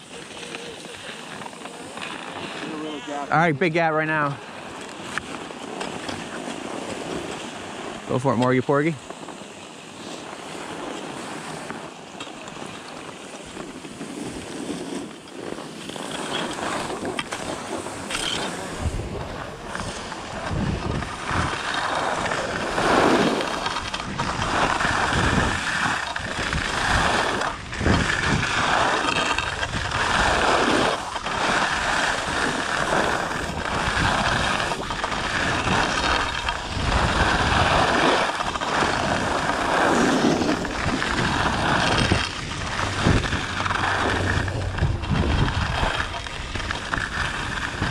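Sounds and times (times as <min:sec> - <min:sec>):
skis scraping over snow: 0:00.0 - 0:47.9
wind on microphone: 0:15.7 - 0:47.9.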